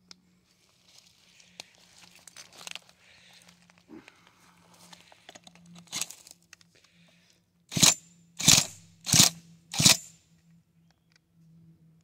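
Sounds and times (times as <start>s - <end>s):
drill cranking chainsaw engine: 5.8s - 6.3s, 7.7s - 10.1s.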